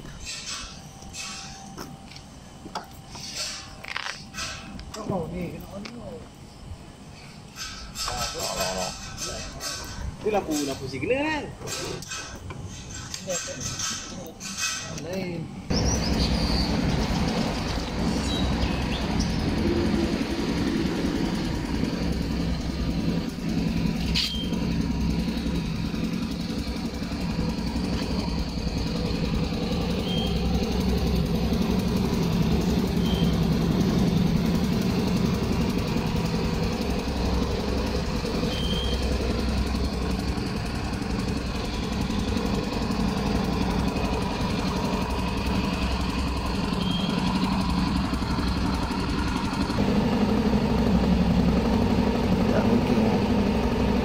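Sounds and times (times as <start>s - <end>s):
scooter engine idling: 15.7s - 54.0s.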